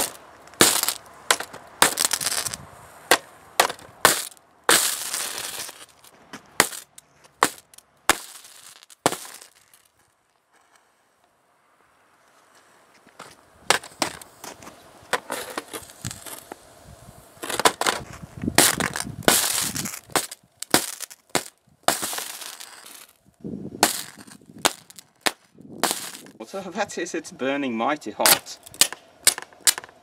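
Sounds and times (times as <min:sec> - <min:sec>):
electric arcing cracks and pops: 0:00.0 - 0:02.6, 0:18.5 - 0:23.2, 0:23.8 - 0:26.4.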